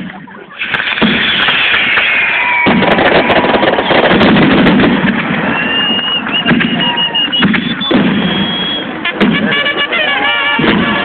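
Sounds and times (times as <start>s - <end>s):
fireworks crackling: 0.0s - 11.0s
steady whistling tone: 1.2s - 4.4s, 5.3s - 9.0s
firework whistle falling in pitch: 1.3s - 4.2s, 5.4s - 11.0s.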